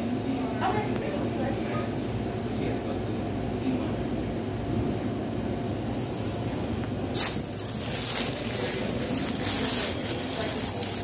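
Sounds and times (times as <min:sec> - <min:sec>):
plastic bag rustling: 0:07.1 - 0:11.0.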